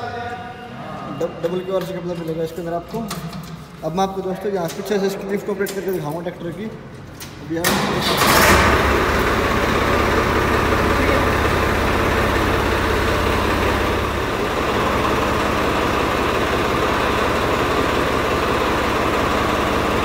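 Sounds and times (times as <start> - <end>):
tractor diesel engine idling: 7.8 - 20.0.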